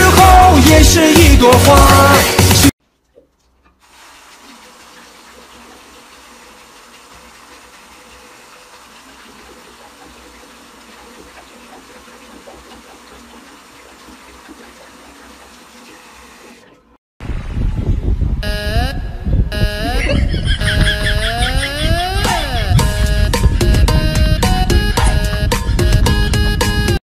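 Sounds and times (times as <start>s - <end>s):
tap water running into basin: 2.8s - 17.0s
dog lapping water: 9.1s - 16.1s.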